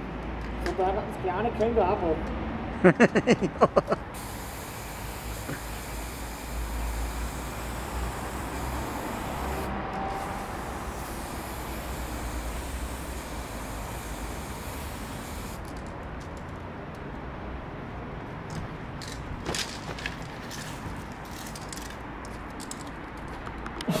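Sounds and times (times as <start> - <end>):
aerosol spray can hissing: 4.2 - 15.7
light clicks and rustles: 18.4 - 23.9.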